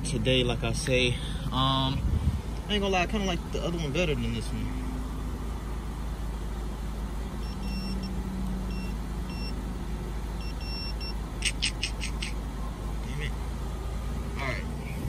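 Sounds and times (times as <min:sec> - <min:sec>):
car engine idling: 0:00.0 - 0:15.0
short high-pitched beeps: 0:07.4 - 0:09.6, 0:10.4 - 0:11.9.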